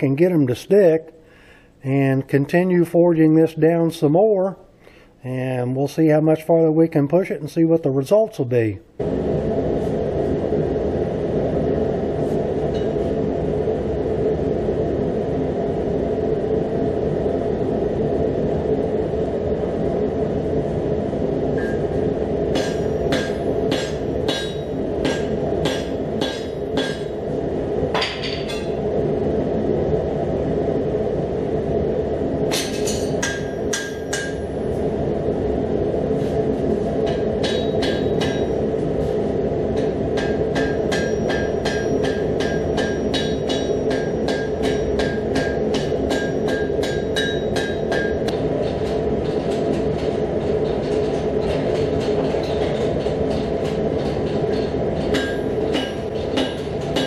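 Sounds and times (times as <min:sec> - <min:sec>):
forge roaring: 0:09.0 - 0:49.6
hammer ringing on anvil: 0:22.6 - 0:27.1, 0:32.6 - 0:34.4, 0:37.1 - 0:38.6, 0:40.2 - 0:48.3, 0:55.1 - 0:57.0.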